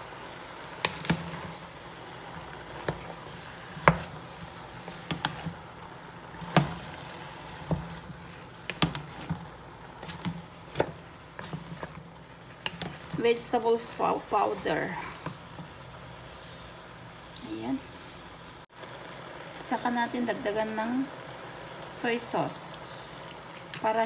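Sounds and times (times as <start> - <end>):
wooden spatula scraping pot: 0.8 - 5.7, 6.3 - 15.6.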